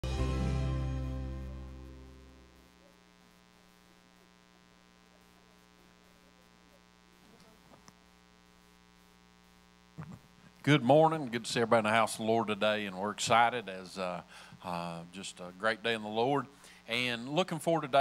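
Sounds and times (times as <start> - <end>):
music: 0.0 - 2.5
electrical mains hum: 1.2 - 18.0.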